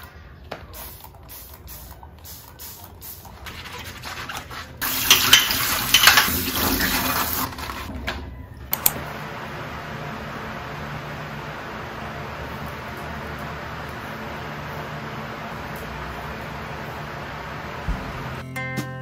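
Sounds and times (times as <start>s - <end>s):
tap water running into sink: 4.8s - 7.5s.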